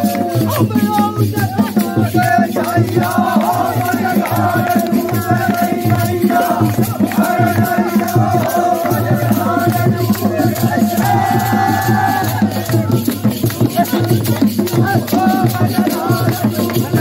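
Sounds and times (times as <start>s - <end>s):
hand drum beating: 0.0s - 17.0s
men singing together: 0.0s - 17.0s.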